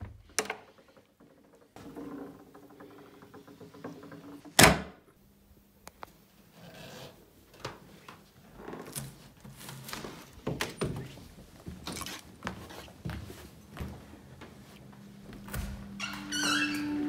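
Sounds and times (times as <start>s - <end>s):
footsteps on carpeted stairs: 9.5s - 16.3s.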